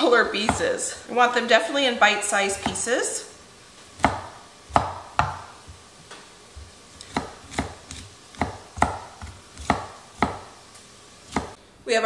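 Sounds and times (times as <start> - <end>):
knife chopping on cutting board: 2.6 - 2.8, 4.0 - 5.8, 6.6 - 10.6, 11.3 - 11.6.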